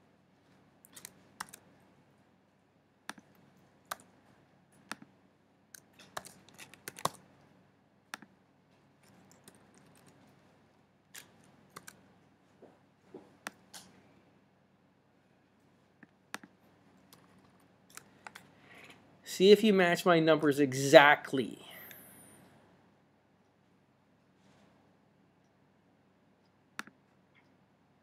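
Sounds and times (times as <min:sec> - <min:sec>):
computer keyboard keystrokes: 0:00.8 - 0:01.6, 0:03.1 - 0:04.1, 0:05.7 - 0:07.2, 0:09.0 - 0:10.2, 0:11.1 - 0:12.0, 0:17.1 - 0:18.5
mouse clicks: 0:03.1 - 0:04.1, 0:04.8 - 0:05.1, 0:16.0 - 0:18.5, 0:26.4 - 0:27.5.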